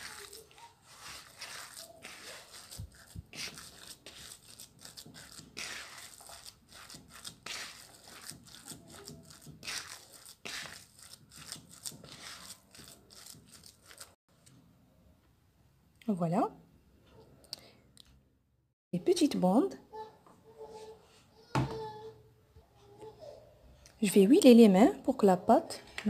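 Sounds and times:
hands squeezing dough: 0.0s - 14.2s.

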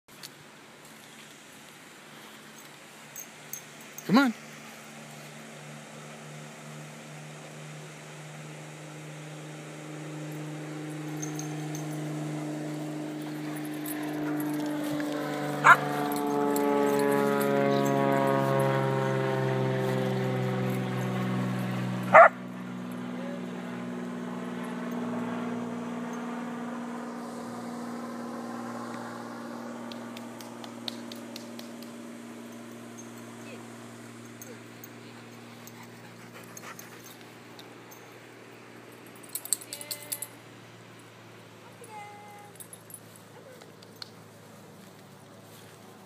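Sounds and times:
low mechanical hum: 0.1s - 46.0s
higher hum: 3.0s - 43.6s
dog bark: 22.1s - 22.4s.

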